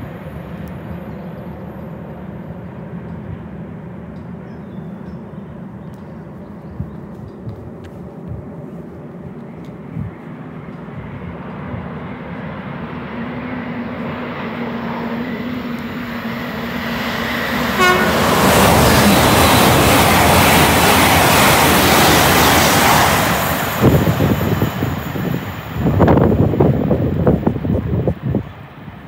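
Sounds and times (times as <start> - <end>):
train passing at speed: 0.0 - 29.0
train horn toot: 17.7 - 19.1.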